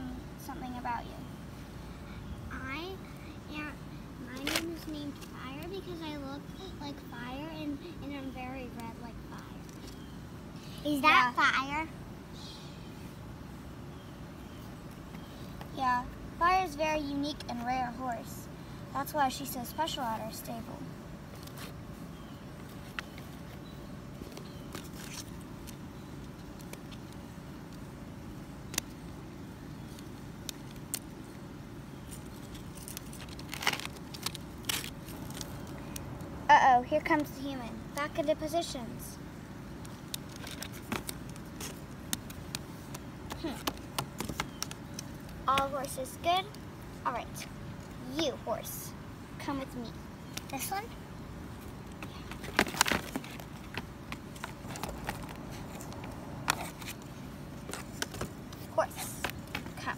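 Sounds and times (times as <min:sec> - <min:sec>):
plastic toys clicking on cardboard: 0:40.1 - 0:45.7
cardboard rustle: 0:52.0 - 0:59.9.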